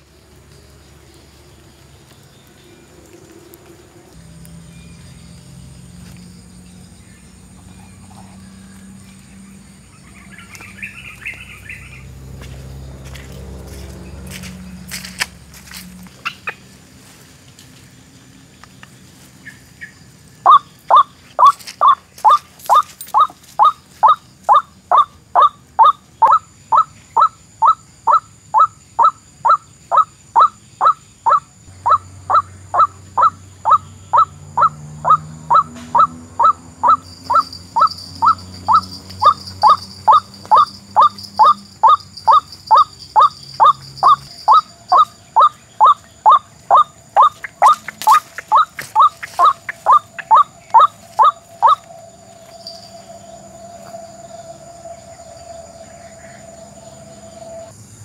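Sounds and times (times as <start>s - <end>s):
waterhen calling: 19.8s - 51.9s.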